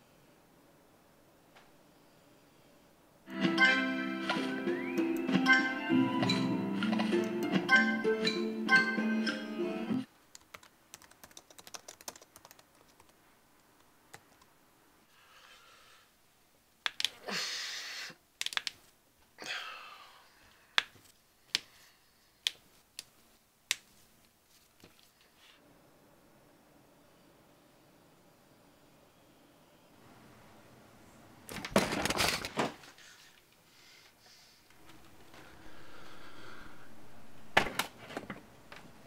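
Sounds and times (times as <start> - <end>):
background music: 3.3 - 10.1
keyboard typing clicks: 10.3 - 13.1.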